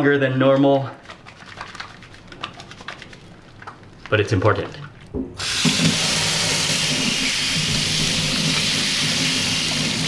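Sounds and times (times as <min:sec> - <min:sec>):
water splashing over hands: 0:01.0 - 0:03.8
tap water running into metal sink: 0:05.4 - 0:10.0.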